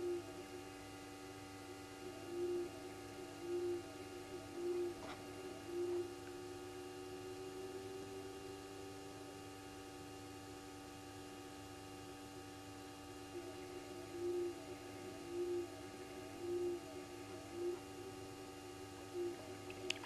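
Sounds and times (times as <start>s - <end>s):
steady electrical hum: 0.0s - 20.0s
short low hoot: 1.7s - 9.4s, 13.3s - 19.9s.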